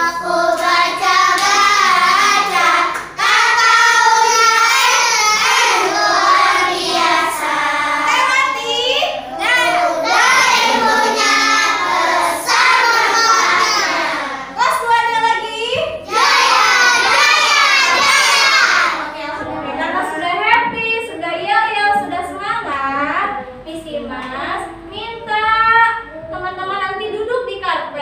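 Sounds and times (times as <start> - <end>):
children singing a cheer: 0.0 - 14.6, 16.0 - 19.6.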